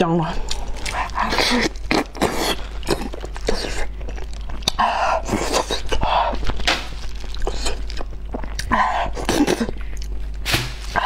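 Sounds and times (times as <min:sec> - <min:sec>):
steady low hum: 0:00.0 - 0:11.0
meat squelching: 0:00.4 - 0:09.7
wet chewing and lip-smacking: 0:00.4 - 0:10.4.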